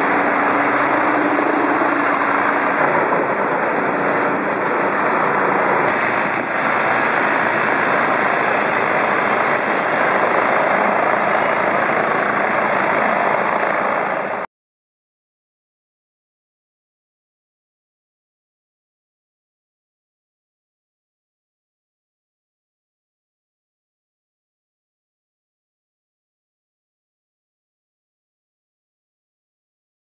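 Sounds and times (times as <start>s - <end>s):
high-pressure water jets on metal: 5.9s - 10.4s.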